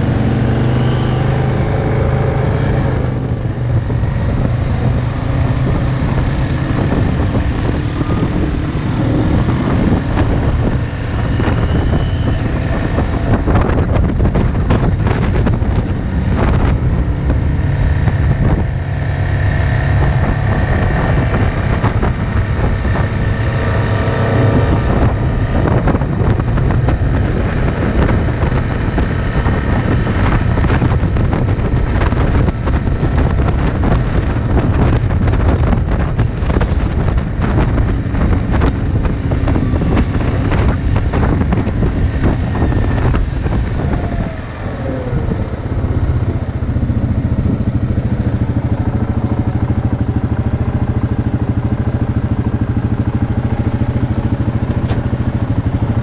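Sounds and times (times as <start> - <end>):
atv engine running: 0.0 - 56.0
wind rushing over microphone: 0.0 - 56.0.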